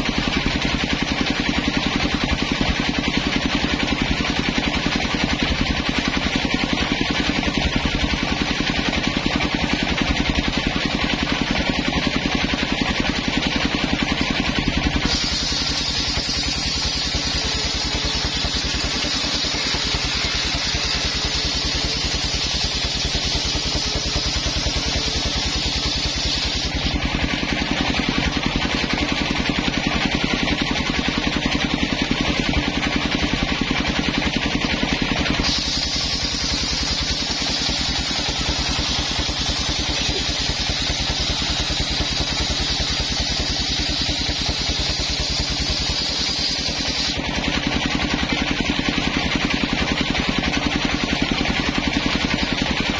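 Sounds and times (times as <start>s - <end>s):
saw bench engine running: 0.0s - 52.9s
saw blade ripping through log: 14.8s - 29.2s, 35.2s - 47.8s.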